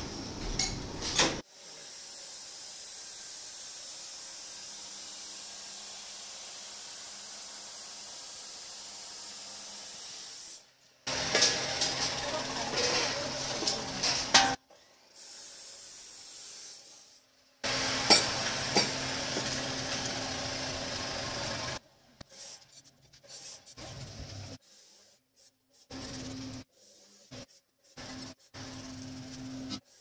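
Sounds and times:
welding arc hissing and crackling: 0:01.4 - 0:14.6, 0:15.2 - 0:21.8.

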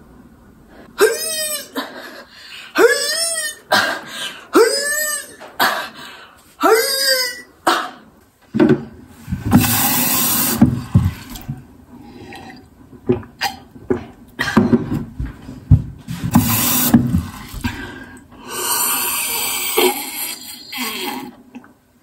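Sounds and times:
boy gulping water: 0:09.4 - 0:14.9, 0:16.3 - 0:21.8.

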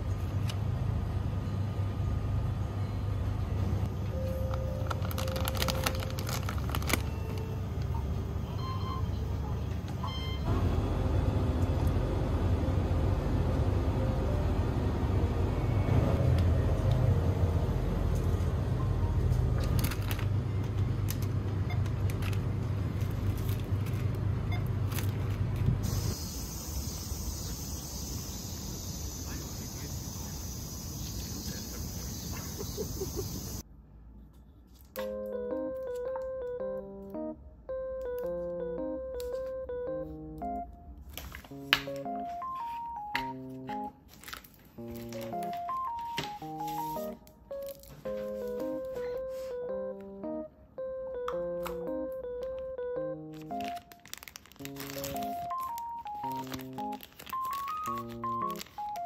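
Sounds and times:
plastic snack bag crinkling: 0:04.4 - 0:07.4, 0:19.6 - 0:20.4, 0:44.0 - 0:48.8, 0:53.3 - 0:59.0
cicadas singing: 0:25.8 - 0:33.6.

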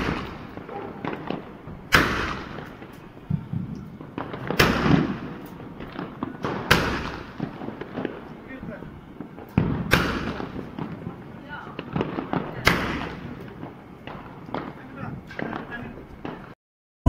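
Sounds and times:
faint firework crackling: 0:00.0 - 0:16.6
firework shells banging: 0:00.0 - 0:16.6.

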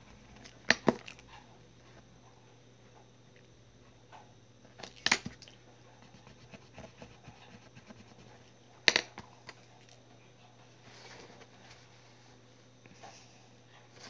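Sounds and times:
pen scratching on paper: 0:06.0 - 0:08.4.

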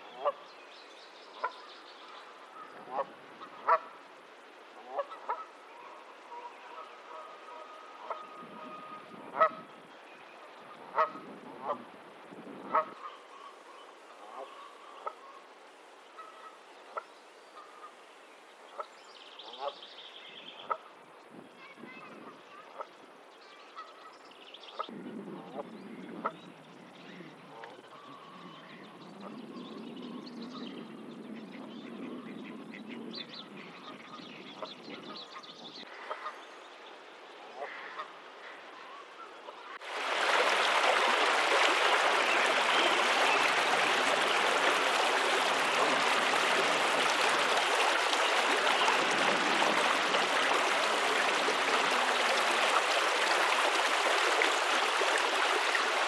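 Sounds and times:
birds chirping: 0:40.0 - 0:54.4.

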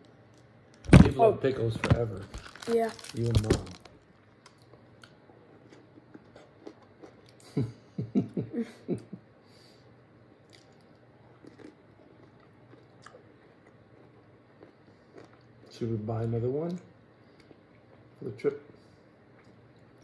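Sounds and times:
crunching pickle: 0:01.8 - 0:07.4, 0:10.5 - 0:17.5
person chewing: 0:04.5 - 0:07.5, 0:10.4 - 0:15.7, 0:16.7 - 0:18.1, 0:19.2 - 0:20.0.

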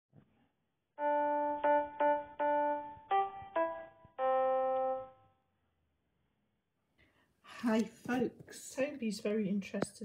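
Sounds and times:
keyboard jingle melody: 0:01.0 - 0:05.3.

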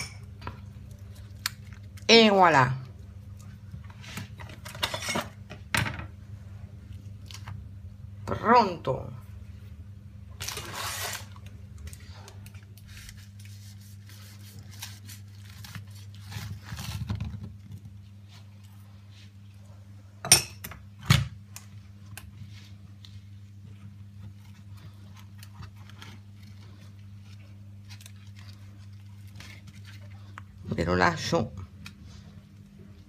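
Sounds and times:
low steady hum: 0:00.0 - 0:33.0.

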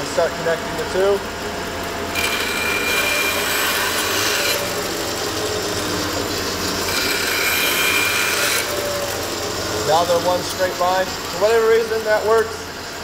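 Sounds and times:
bandsaw humming: 0:00.0 - 0:13.0.

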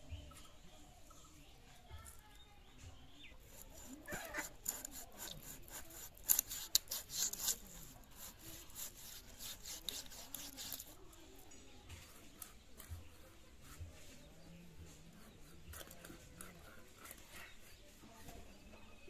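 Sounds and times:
knife scraping fish scales: 0:03.4 - 0:11.4, 0:12.0 - 0:17.8.

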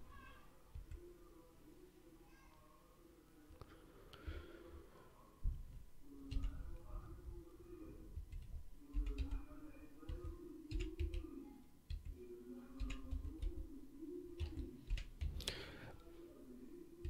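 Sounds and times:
soft low thumps: 0:05.4 - 0:06.0
keyboard and mouse clicks: 0:05.7 - 0:06.6, 0:08.2 - 0:09.4, 0:10.0 - 0:11.2, 0:11.9 - 0:12.2, 0:12.8 - 0:13.6, 0:14.4 - 0:15.6.

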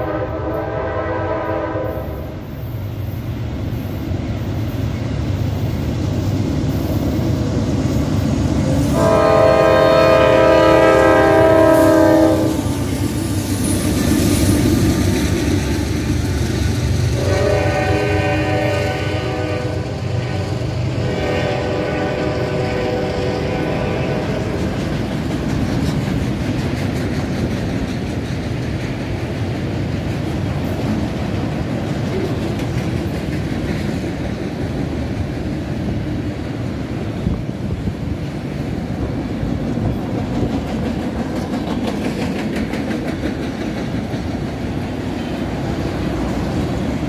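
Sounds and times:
locomotive horn blasts: 0:00.0 - 0:02.3, 0:08.6 - 0:12.7, 0:17.2 - 0:24.6
rumble of train rolling by: 0:00.0 - 0:47.0.

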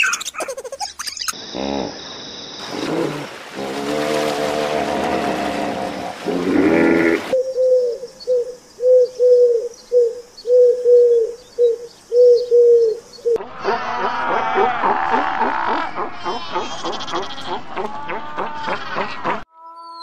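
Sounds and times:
bird hooting: 0:07.0 - 0:13.4
chorus of animals barking: 0:13.4 - 0:19.4.

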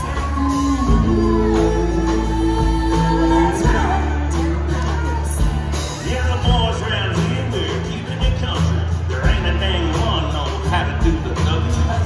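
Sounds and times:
man singing lead vocal: 0:00.0 - 0:08.6
live country band playing: 0:00.0 - 0:12.0.

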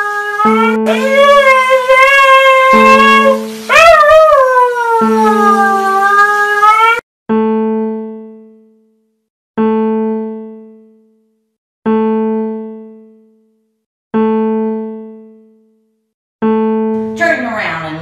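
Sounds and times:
piano-like keyboard note: 0:09.6 - 0:11.2, 0:11.9 - 0:13.4, 0:14.2 - 0:15.7.

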